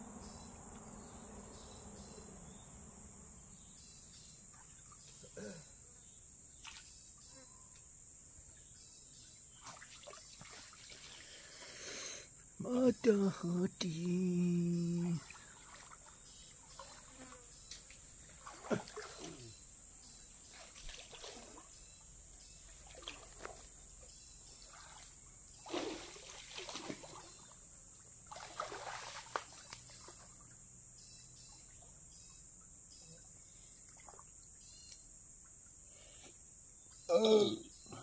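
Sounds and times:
insects chirring: 0:00.0 - 0:38.0
water splashing and trickling: 0:04.3 - 0:05.6, 0:06.5 - 0:07.2, 0:08.4 - 0:30.8, 0:31.5 - 0:34.6.

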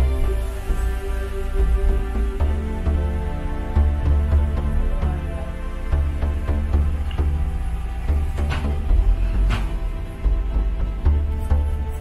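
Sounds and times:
music with deep bass: 0:00.0 - 0:12.0.

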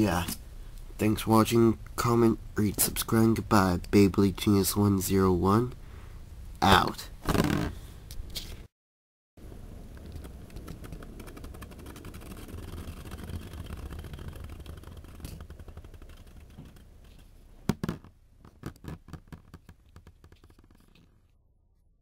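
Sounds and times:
spinning top whirring scrape: 0:10.7 - 0:17.3.

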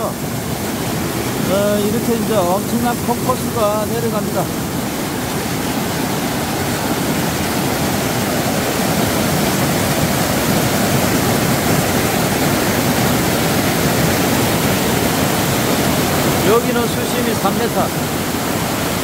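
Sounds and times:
waterfall rushing into pool: 0:00.0 - 0:19.0.

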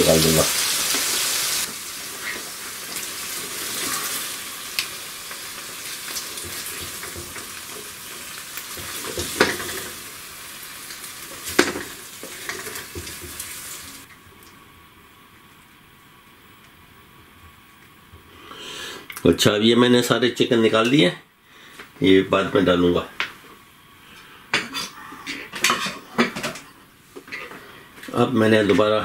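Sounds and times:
chicken sizzling in a wok: 0:00.0 - 0:14.1.

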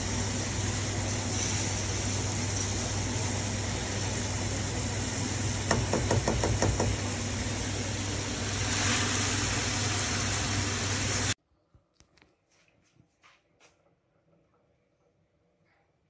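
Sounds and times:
vegetables sizzling in a pan: 0:00.0 - 0:11.4
spatula knocking against pan: 0:05.7 - 0:07.0.

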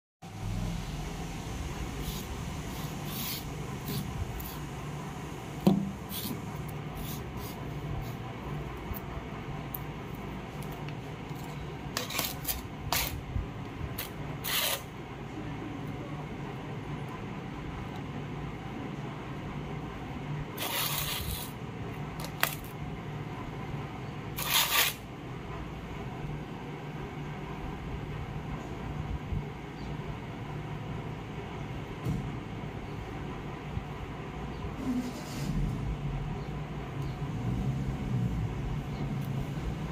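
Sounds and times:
steady low hum: 0:00.2 - 0:39.9
battery scraping on stone floor: 0:02.0 - 0:04.7, 0:06.0 - 0:08.3, 0:10.6 - 0:13.2, 0:14.0 - 0:14.9, 0:20.6 - 0:22.8, 0:24.4 - 0:25.1.

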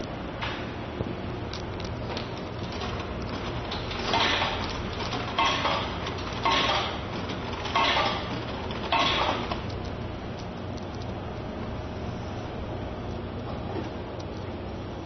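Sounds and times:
coins rattling in vending machine: 0:02.3 - 0:10.0.

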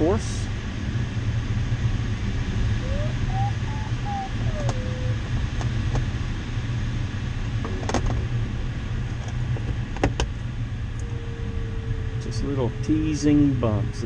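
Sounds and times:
low hum: 0:00.0 - 0:09.8, 0:10.4 - 0:14.0
variometer beeps: 0:02.8 - 0:05.2.

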